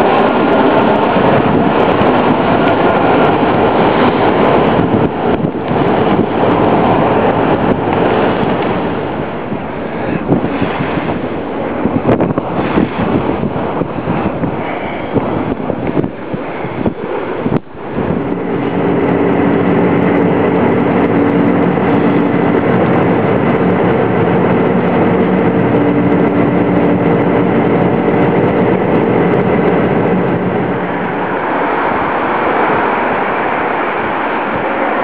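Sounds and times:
boat engine droning: 0:00.0 - 0:35.0
rushing noise: 0:00.0 - 0:35.0
humming tones: 0:17.5 - 0:31.7.

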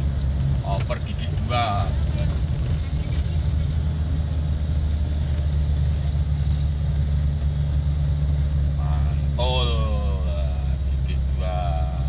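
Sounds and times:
road noise: 0:00.0 - 0:12.0
van engine low drone: 0:00.0 - 0:12.0.

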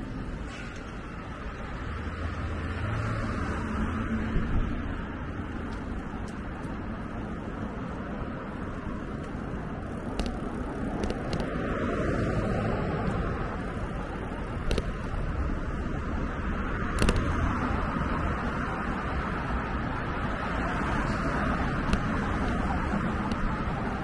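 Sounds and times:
bicycle rolling rumble: 0:00.0 - 0:24.0
car traffic: 0:00.0 - 0:24.0
sharp clicks: 0:10.1 - 0:11.6, 0:14.6 - 0:15.1, 0:16.9 - 0:17.5, 0:21.8 - 0:23.5.

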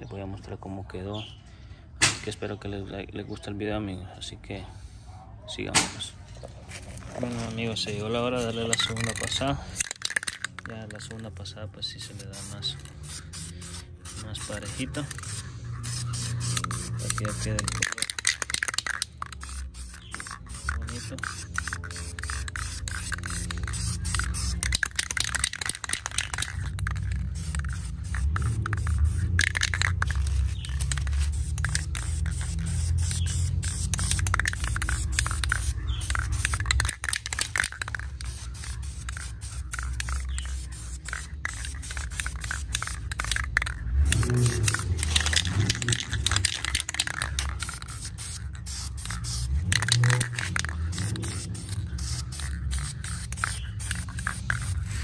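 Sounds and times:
aerosol spray paint hissing: 0:11.9 - 0:55.0.

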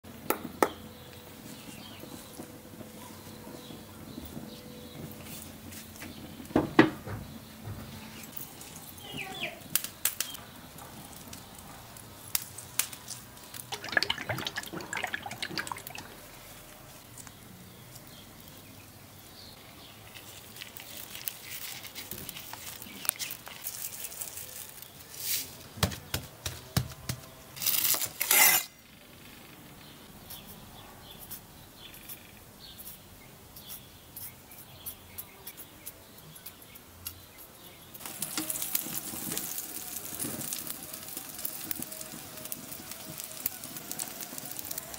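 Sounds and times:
taps and rustles of handling food: 0:25.7 - 0:27.4.

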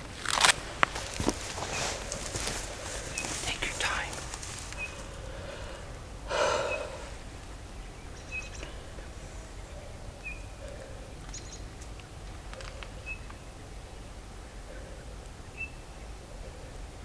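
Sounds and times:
low wind rumble: 0:00.0 - 0:17.0
loud breathy exhale: 0:05.2 - 0:07.2.

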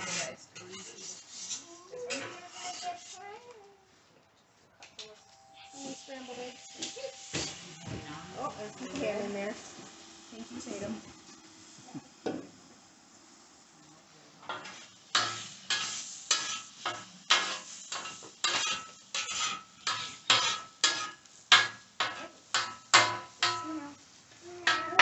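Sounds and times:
eggs sizzling: 0:00.0 - 0:03.6, 0:04.9 - 0:25.0
metal spatula clanking on griddle: 0:02.1 - 0:03.1, 0:06.7 - 0:08.0, 0:14.5 - 0:23.8, 0:24.6 - 0:25.0.

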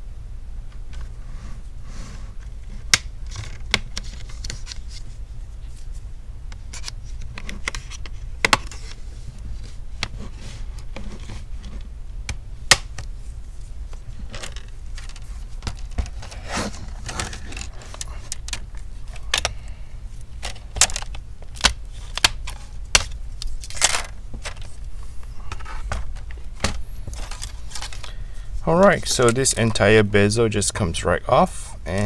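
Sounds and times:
steady low hum: 0:00.0 - 0:32.0
plastic scraping: 0:14.0 - 0:19.6.

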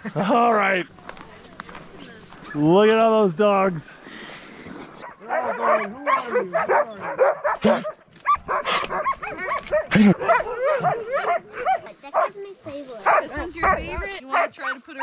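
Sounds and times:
dogs barking and yipping: 0:05.0 - 0:12.4, 0:13.0 - 0:14.8.

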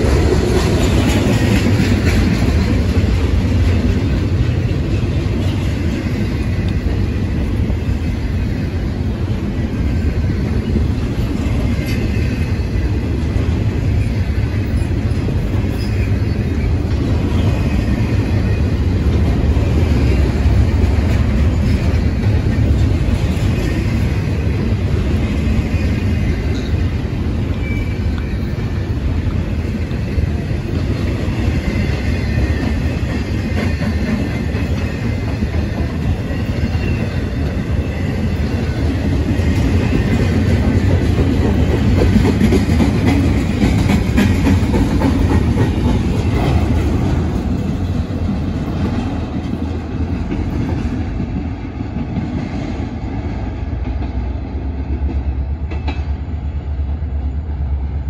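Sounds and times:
freight train wheels rumbling: 0:00.0 - 0:58.0
high-pitched wheel squeals: 0:27.5 - 0:28.6.

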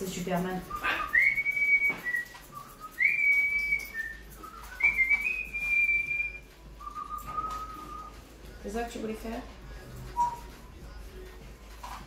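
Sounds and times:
person whistling a slow tune: 0:00.6 - 0:08.2, 0:10.1 - 0:10.6.

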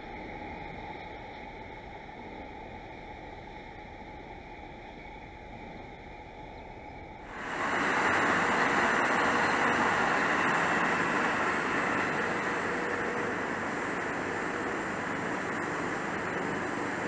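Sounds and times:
faint steady hum: 0:00.0 - 0:17.0
rail noise of moving train: 0:00.0 - 0:17.0
outdoor hiss: 0:06.8 - 0:17.0.

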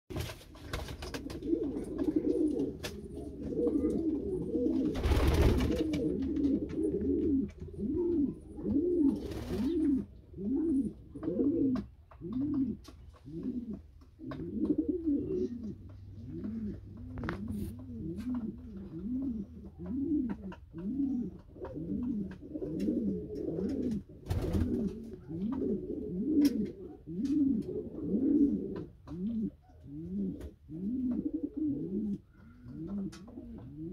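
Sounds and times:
pigeons cooing: 0:01.1 - 0:33.9.

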